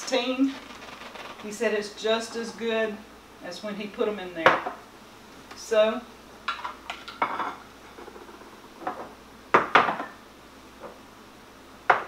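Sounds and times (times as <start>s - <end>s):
glass jars clinking on tiles: 6.5s - 7.6s.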